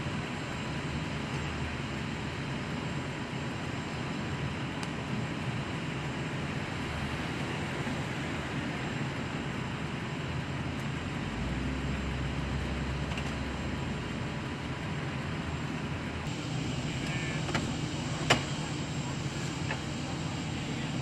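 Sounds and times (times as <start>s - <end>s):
engines droning: 0.0s - 21.0s.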